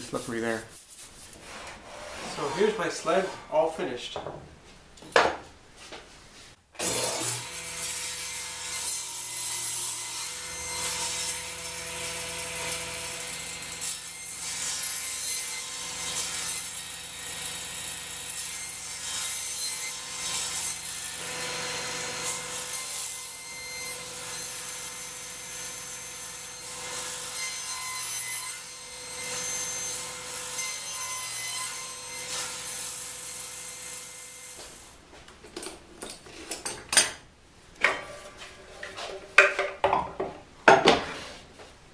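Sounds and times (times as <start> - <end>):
saw cutting wooden board: 1.4 - 3.6, 6.8 - 34.9.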